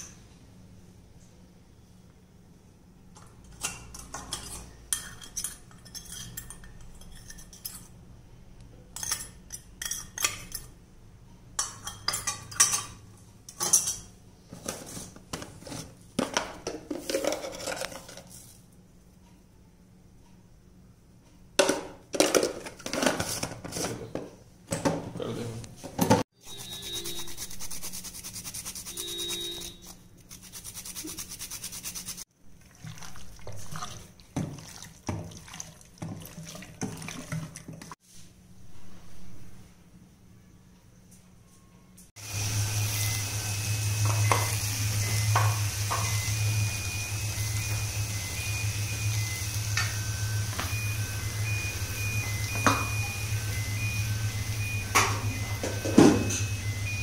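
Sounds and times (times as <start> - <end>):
spoon scraping steel bowl: 3.5 - 8.0, 26.4 - 32.2.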